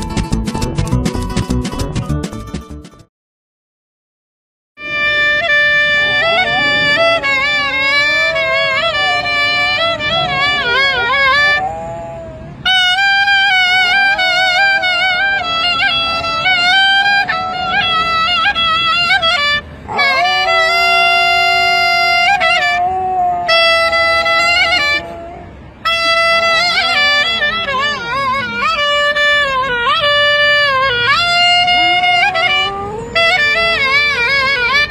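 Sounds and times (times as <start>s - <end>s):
clarinet long notes: 4.8s - 34.9s
dog howling: 5.9s - 27.4s, 31.1s - 34.6s.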